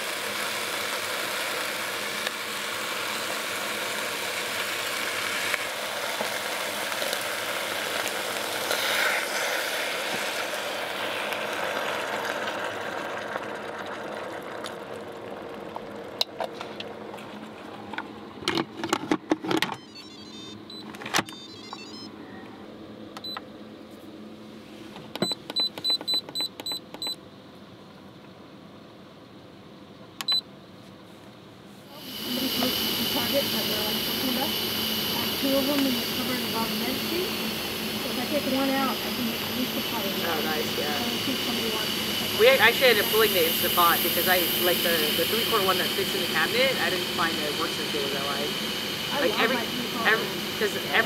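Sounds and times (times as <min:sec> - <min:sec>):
short beeps: 0:19.8 - 0:22.4, 0:30.2 - 0:30.4.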